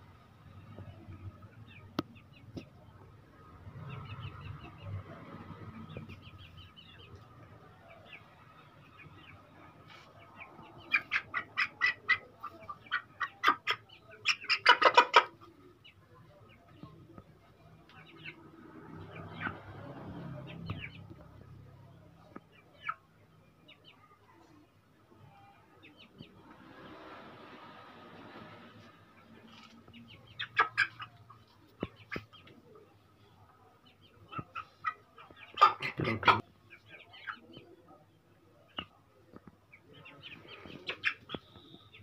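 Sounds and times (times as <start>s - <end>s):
faint chirps: 39.8s - 42.0s.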